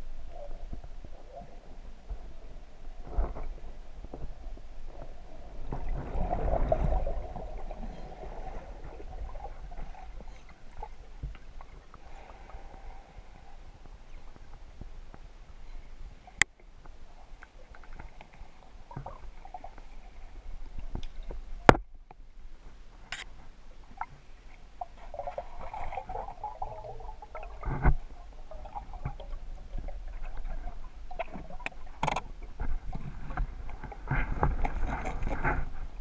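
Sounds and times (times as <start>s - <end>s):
low underwater rumble: 0.0s - 36.0s
sharp clicks and knocks: 31.2s - 32.3s.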